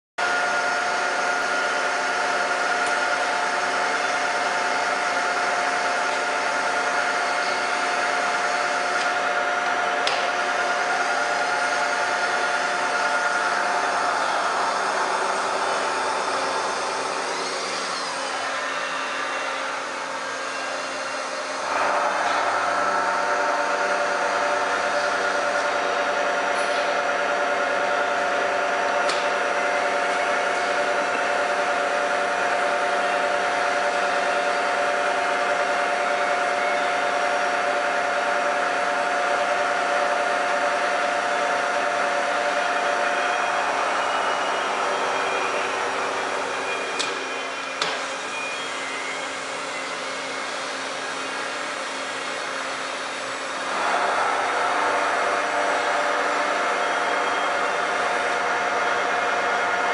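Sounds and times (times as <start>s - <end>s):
milling machine whining: 0.2s - 59.9s.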